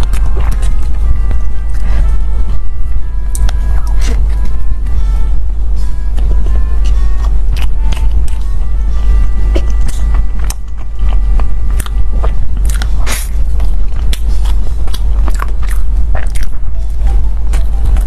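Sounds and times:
close-miked chewing: 0.0 - 5.0, 5.8 - 18.0
steady low hum: 0.0 - 18.0
mouth clicks and smacks: 9.5 - 16.8.

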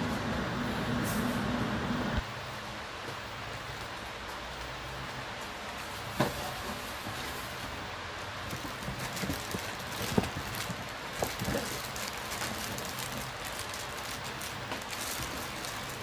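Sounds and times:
plastic bags crinkling: 8.4 - 16.0.

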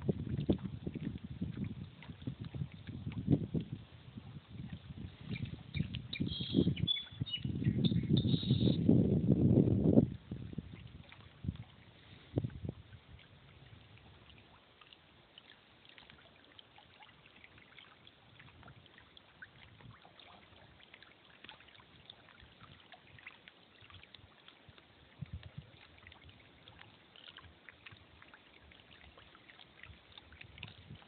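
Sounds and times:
small waves lapping at shore: 10.6 - 31.0.

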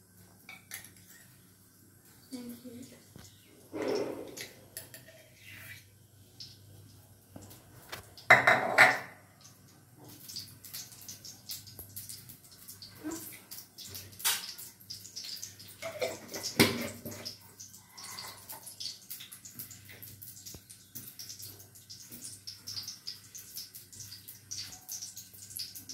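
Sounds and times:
steel spoon scraping a pan: 3.7 - 5.9
ghee crackling in a pan: 9.3 - 25.9.

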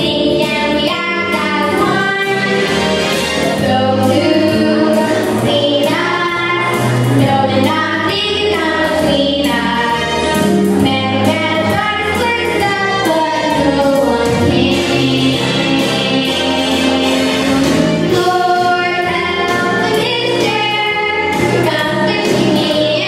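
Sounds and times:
girls singing a duet: 0.0 - 23.0
instrumental accompaniment: 0.0 - 23.0.

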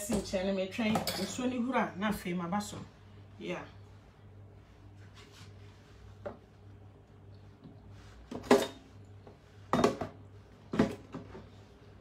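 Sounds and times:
low steady hum: 0.0 - 12.0
pots and utensils clattering: 8.4 - 8.9, 9.7 - 10.2.

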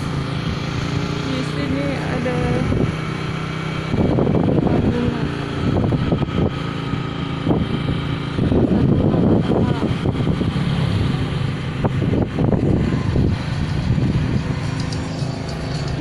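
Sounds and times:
motorcycle engines running: 0.0 - 16.0
people's voices: 8.8 - 10.1.

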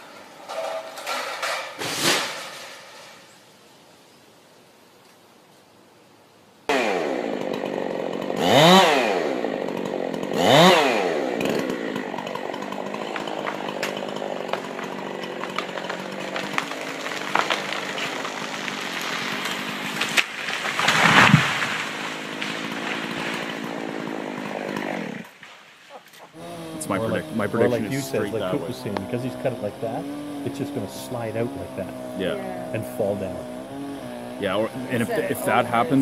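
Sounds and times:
tree top crashing down: 0.5 - 3.3, 12.3 - 23.8
chainsaw revving and cutting: 6.7 - 25.4, 26.3 - 36.0.

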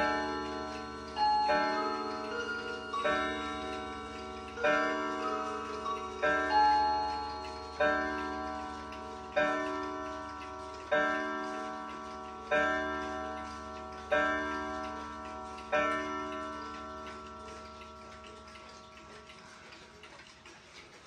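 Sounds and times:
clock striking a gong: 0.0 - 18.7.

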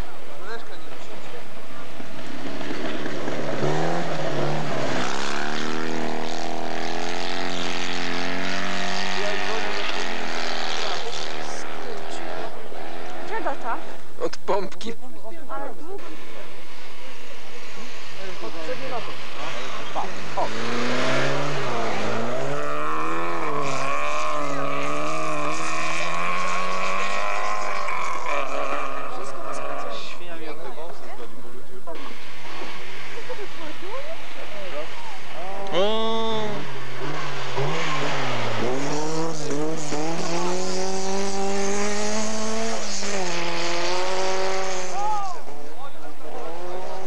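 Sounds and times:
rally car engine revving: 0.0 - 47.0.

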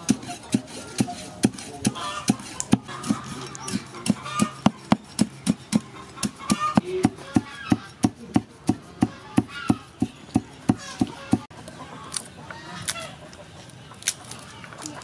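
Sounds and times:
cleaver chopping on wooden block: 0.0 - 11.5
chickens clucking: 0.0 - 15.0.

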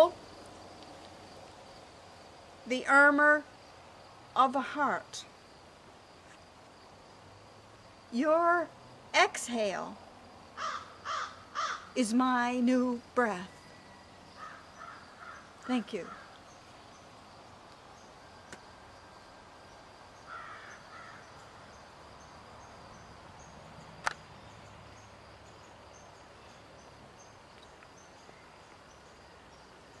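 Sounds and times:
faint outdoor ambience: 0.0 - 30.0
bird calling: 10.6 - 12.0, 13.6 - 16.7
sharp click: 24.0 - 24.2.

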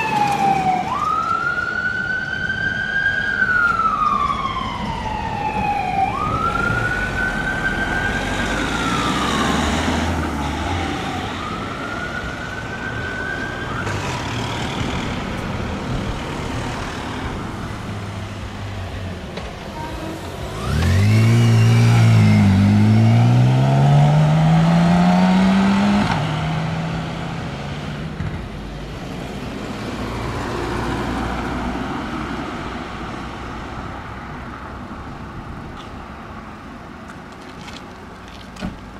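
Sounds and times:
fire engine siren wailing: 0.0 - 14.8, 19.8 - 26.6
traffic: 0.0 - 38.9
vehicle engine revving: 20.4 - 27.8.

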